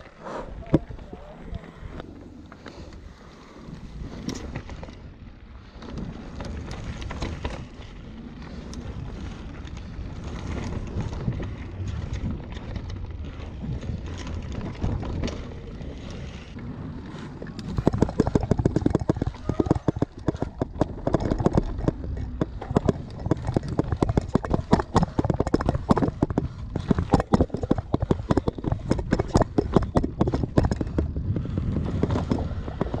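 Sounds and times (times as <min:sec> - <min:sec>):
bike rattling: 0:00.0 - 0:33.0
bike tyres rolling over dirt: 0:00.0 - 0:33.0
wind on microphone: 0:00.0 - 0:33.0.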